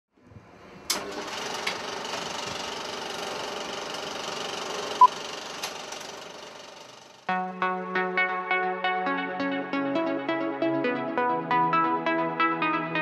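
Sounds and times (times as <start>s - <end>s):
film projector clatter: 0.9s - 7.3s.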